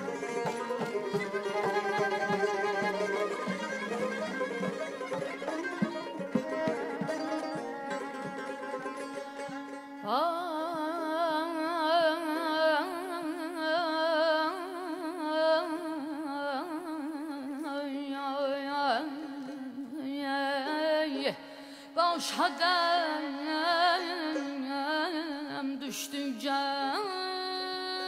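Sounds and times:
traditional ensemble music: 0.0 - 9.9.

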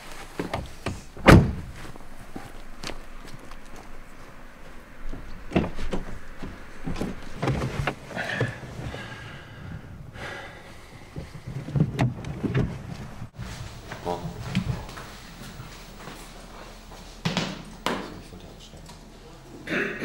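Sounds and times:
car door opening and shutting: 0.4 - 2.0, 5.0 - 9.1, 11.0 - 13.3.

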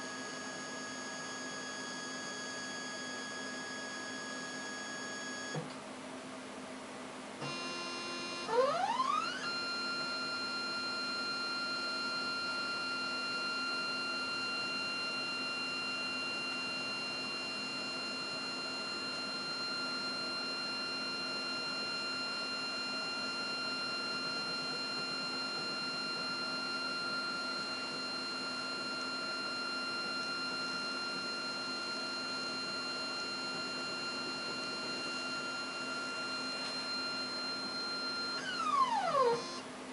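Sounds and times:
scanner tray motor whine: 0.0 - 5.7, 7.4 - 39.7.

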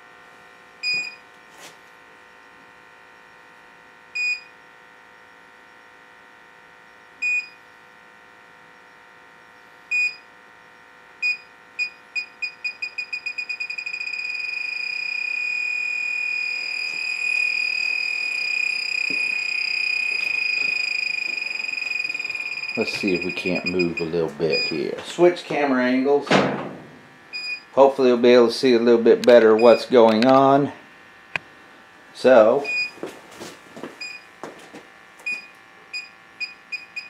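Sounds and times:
gas detector beeping: 0.8 - 1.3, 4.1 - 4.6, 6.9 - 7.6, 8.8 - 25.0, 27.3 - 27.8, 29.5 - 30.0, 32.6 - 33.0, 34.0 - 34.3, 35.2 - 37.0.

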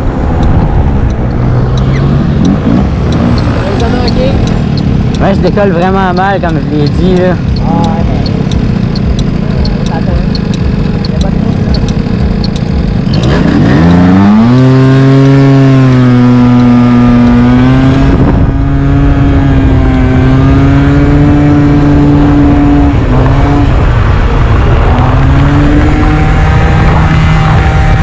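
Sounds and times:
scooter engine accelerating: 0.0 - 28.0
wind rumbling on camera: 0.0 - 28.0
person talking: 5.2 - 8.4, 9.4 - 12.0.

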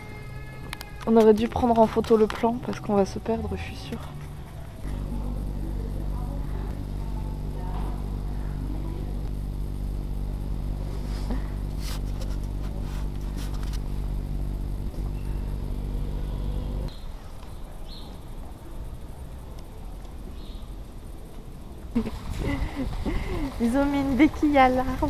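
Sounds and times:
motor humming: 0.0 - 16.9
outdoor ambience: 0.0 - 25.0.

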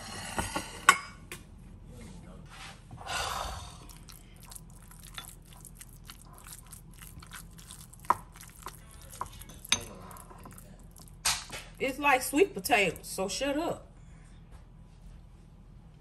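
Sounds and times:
spoon clinking bowl: 3.9 - 11.2
spoon scraping ceramic bowl: 3.9 - 11.2.

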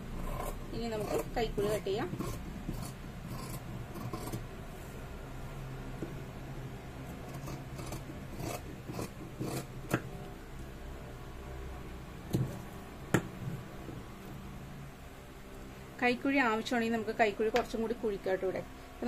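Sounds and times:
scissors cutting fabric: 0.2 - 4.4, 7.2 - 10.1.

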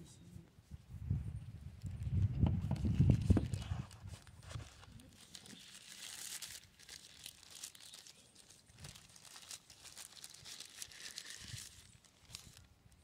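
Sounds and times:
packing wrap crinkling: 2.8 - 13.0.

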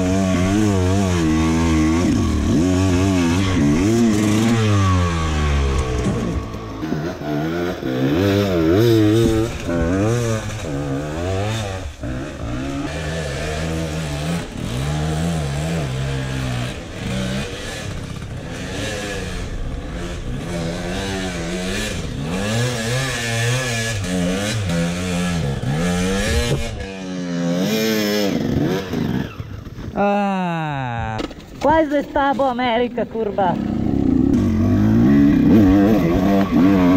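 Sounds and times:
dirt bike engine revving: 0.0 - 30.0, 30.9 - 36.9.

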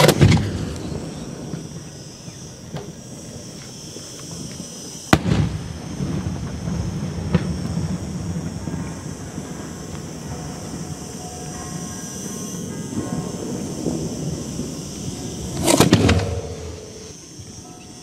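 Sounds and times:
firework shells bursting: 0.0 - 1.8, 2.6 - 10.8, 12.9 - 17.4.

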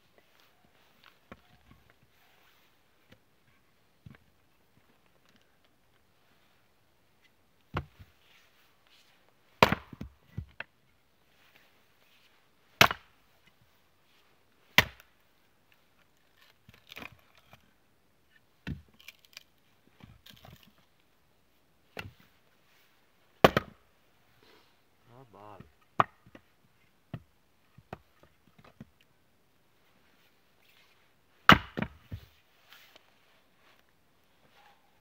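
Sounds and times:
axe chopping firewood: 9.6 - 10.5, 12.8 - 13.1, 14.7 - 15.1, 23.4 - 23.8, 25.6 - 26.4, 31.4 - 32.2
split wood pieces clattering: 18.7 - 20.8.

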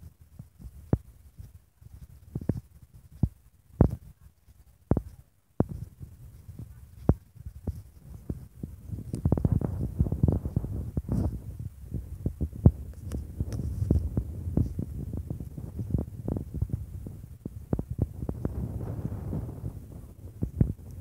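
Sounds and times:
wind buffeting microphone: 4.9 - 21.0.

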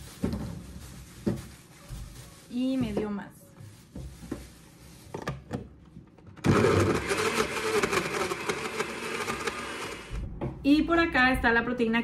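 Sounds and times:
blender running: 6.4 - 10.2.

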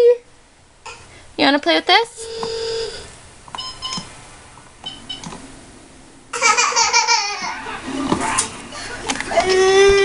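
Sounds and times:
toddler squealing and giggling: 9.3 - 10.0.

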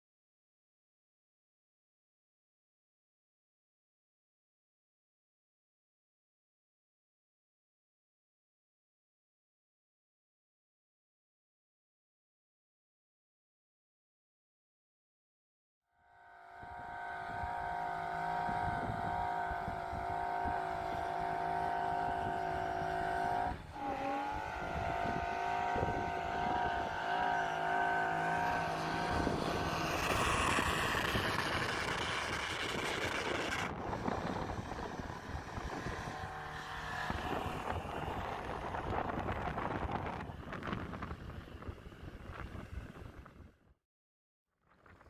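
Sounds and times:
off-road engine: 16.1 - 43.6
vehicle ploughing through snow: 20.7 - 39.0.

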